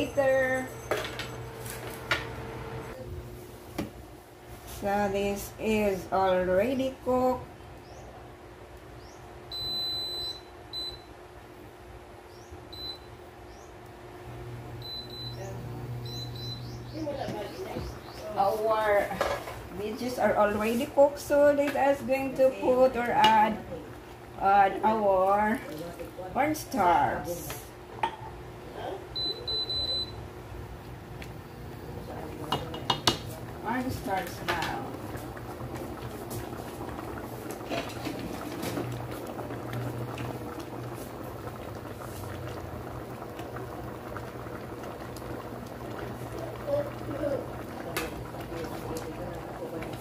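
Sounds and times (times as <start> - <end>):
touch-panel beeps: 9.5 - 11.1, 12.7 - 13.1, 14.8 - 16.7, 29.2 - 30.2
spoon knocking against pan: 32.5 - 33.2.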